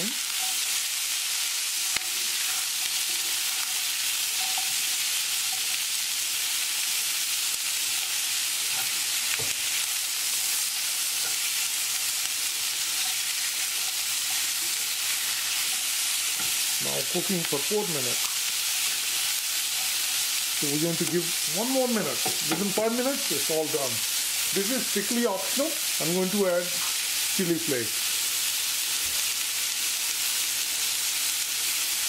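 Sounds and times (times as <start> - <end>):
vegetables sizzling in a frying pan: 0.0 - 32.0
spatula stirring: 2.0 - 5.8, 12.8 - 23.0.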